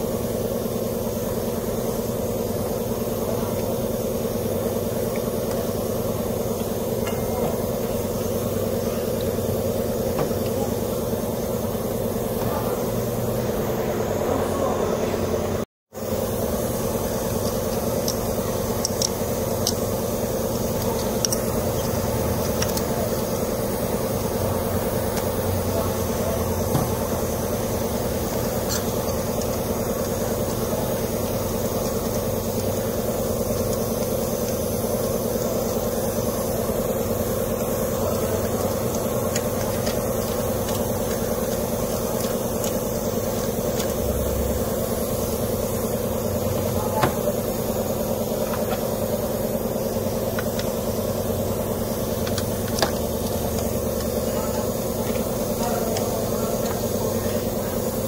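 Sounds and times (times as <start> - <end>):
machine humming: 0.0 - 58.0.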